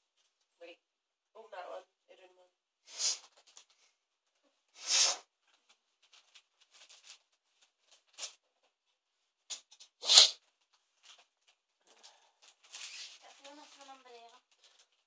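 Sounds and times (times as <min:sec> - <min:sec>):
wrapping paper tearing: 0:06.0 - 0:08.4, 0:10.0 - 0:10.4, 0:12.0 - 0:15.0.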